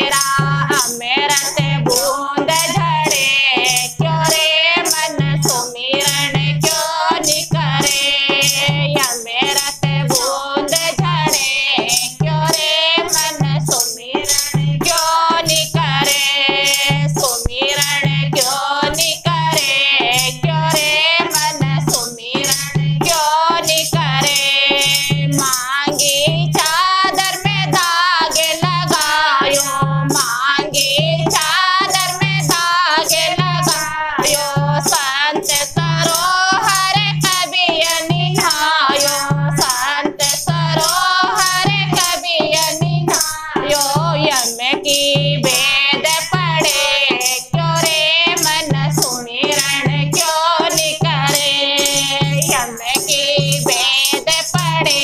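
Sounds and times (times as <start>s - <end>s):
hand drum beating: 0.0s - 55.0s
women singing: 0.0s - 55.0s
jingle clappers rattling: 21.2s - 55.0s.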